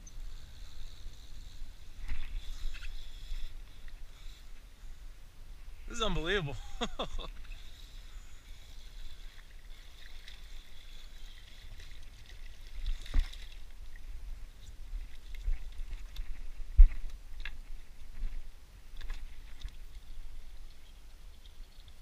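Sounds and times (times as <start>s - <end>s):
fishing reel whirring: 0.0s - 5.2s, 5.9s - 13.9s.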